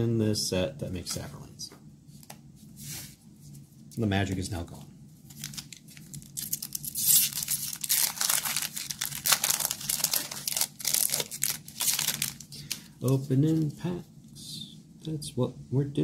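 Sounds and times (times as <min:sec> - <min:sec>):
foil wrapper crackling: 0:05.3 - 0:13.2.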